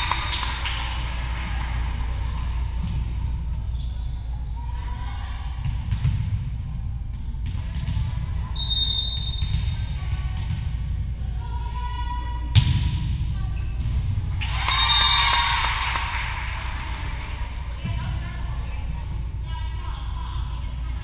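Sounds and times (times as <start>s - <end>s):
shoe squeaks: 3.6s - 4.8s, 19.7s - 20.4s.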